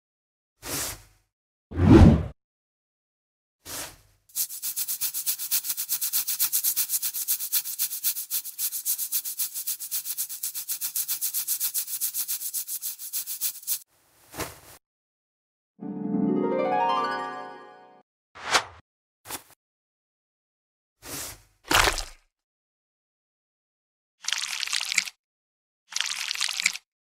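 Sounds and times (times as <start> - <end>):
nail file rasping: 4.4 - 13.8.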